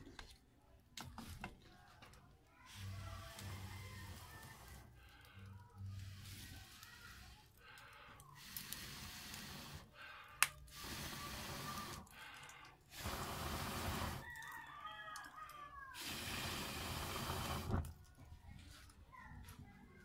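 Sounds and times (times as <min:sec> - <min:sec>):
wood fire hissing: 0:02.7 - 0:14.5, 0:16.0 - 0:18.0.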